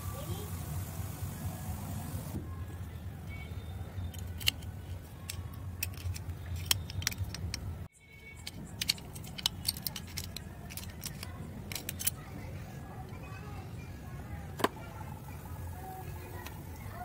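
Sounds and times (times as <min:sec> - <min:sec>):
padlock shackle clinking: 0:04.0 - 0:12.3
key rattling in padlock: 0:04.1 - 0:12.3.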